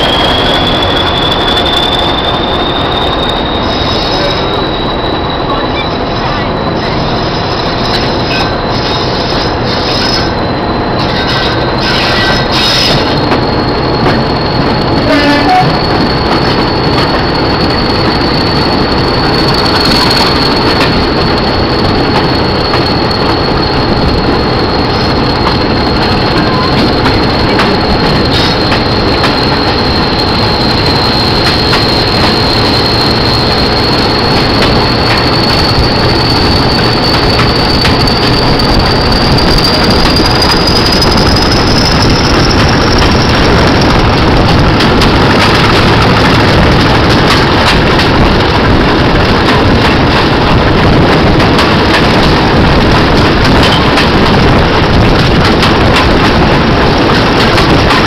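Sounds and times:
high turbocharger whistle: 0:00.0 - 0:05.6
diesel locomotive engine running: 0:00.0 - 0:58.0.

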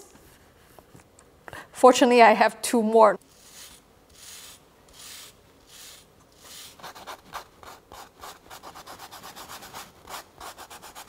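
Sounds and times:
brush scrubbing a comb: 0:03.2 - 0:11.0.

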